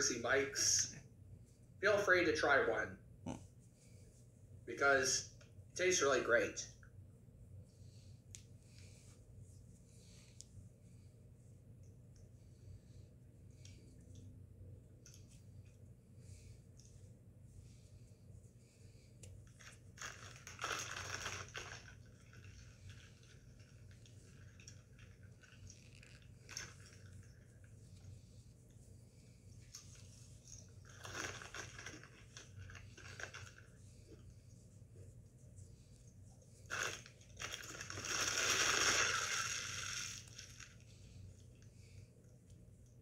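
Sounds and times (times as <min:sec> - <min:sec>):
chip bag crinkling: 0:19.6 - 0:27.2, 0:30.8 - 0:33.7, 0:36.7 - 0:40.8.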